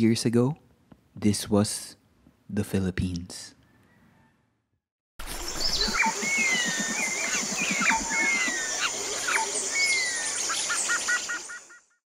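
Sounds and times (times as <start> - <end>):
birds whistling: 5.4 - 12.0.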